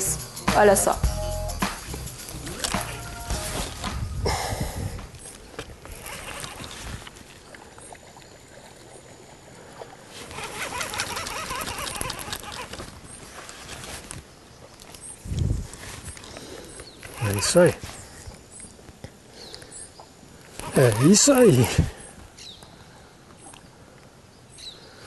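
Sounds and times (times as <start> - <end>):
fishing rod swish and line noise: 1.6 - 4.2, 5.0 - 16.3
fishing reel whirring tick: 5.8 - 6.8, 10.2 - 12.9, 20.6 - 21.6.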